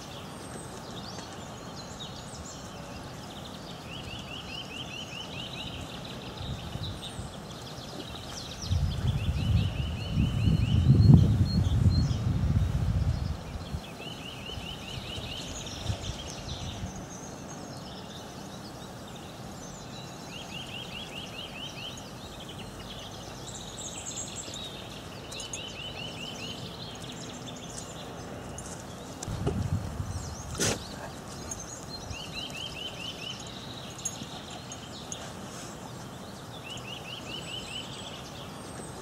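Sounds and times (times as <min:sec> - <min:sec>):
small birds singing: 0:00.0 - 0:39.0
steady outdoor hiss: 0:00.0 - 0:39.0
wind on microphone: 0:06.3 - 0:17.1, 0:29.2 - 0:32.4.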